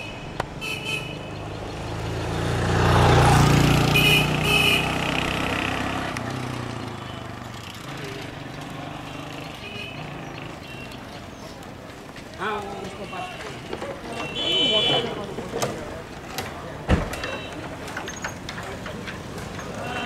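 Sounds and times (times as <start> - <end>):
horn toots: 0.0 - 1.5, 3.4 - 7.4
vehicle engine passing by: 1.3 - 11.5.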